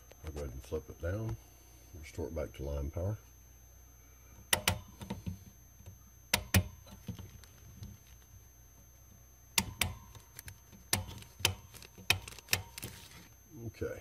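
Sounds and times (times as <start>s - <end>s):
faint low hum: 0.0s - 14.0s
sharp clicks and knocks: 4.5s - 7.9s, 9.6s - 12.9s.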